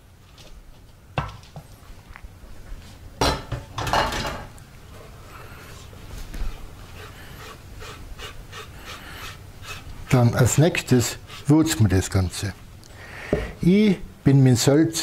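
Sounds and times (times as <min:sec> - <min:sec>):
food mixture rustling: 0:04.6 - 0:12.6.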